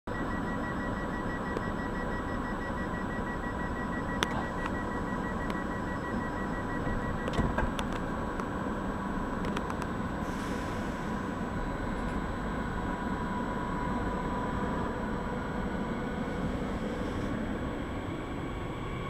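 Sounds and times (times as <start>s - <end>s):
pulsing door warning beep: 0.1s - 7.6s
train steady hum: 0.1s - 19.0s.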